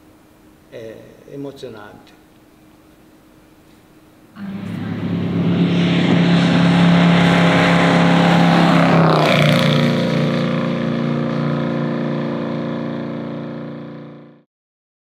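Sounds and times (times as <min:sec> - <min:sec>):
car engine passing by: 0:04.4 - 0:14.3.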